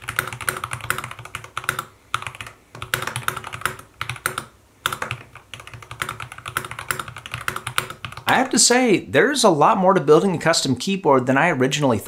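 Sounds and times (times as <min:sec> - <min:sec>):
mechanical keyboard typing: 0:00.0 - 0:08.3.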